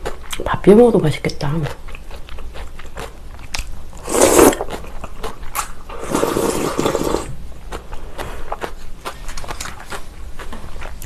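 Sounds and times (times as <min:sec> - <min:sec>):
person slurping noodles: 0:04.0 - 0:04.8, 0:05.9 - 0:07.4
person slurping soup: 0:04.0 - 0:04.8, 0:05.9 - 0:07.4.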